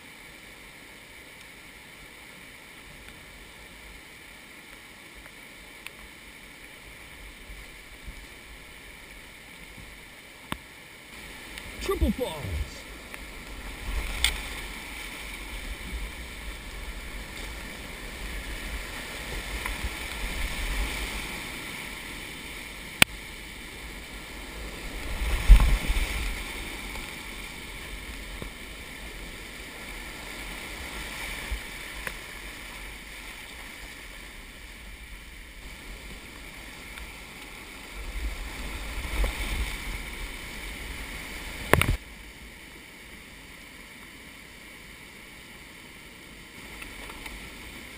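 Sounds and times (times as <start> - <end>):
rushing whitewater roar: 14.4 - 41.7.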